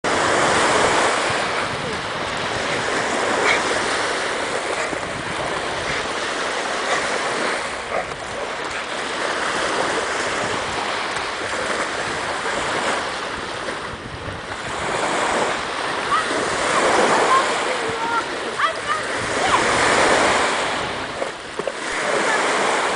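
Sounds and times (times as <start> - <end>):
small waves breaking on shore: 0.1 - 22.9.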